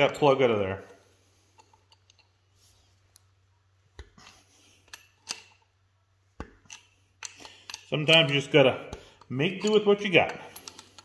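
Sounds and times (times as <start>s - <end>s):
wrench clicking against metal punch: 6.4s - 11.0s.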